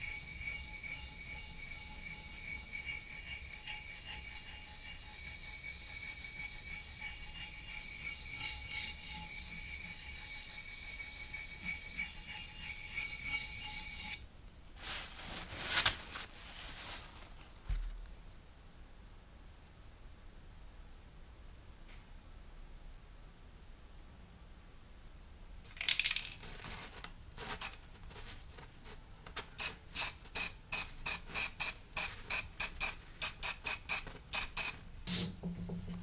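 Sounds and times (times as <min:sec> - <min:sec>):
blade scraping on sharpening stone: 0:00.0 - 0:14.2
rag rustling: 0:14.8 - 0:17.8.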